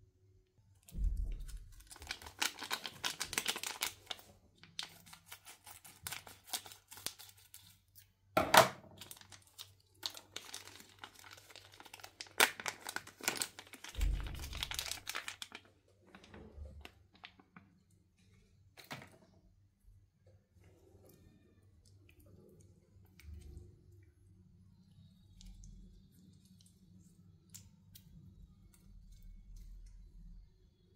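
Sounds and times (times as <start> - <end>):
plastic wrapper crinkling: 1.1 - 8.1, 9.0 - 17.7.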